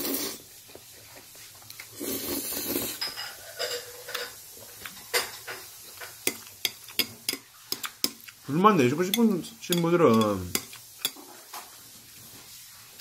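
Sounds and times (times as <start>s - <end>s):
person slurping noodles: 0.0s - 0.4s, 1.9s - 3.0s
metal utensil clicking on plate: 9.1s - 11.2s.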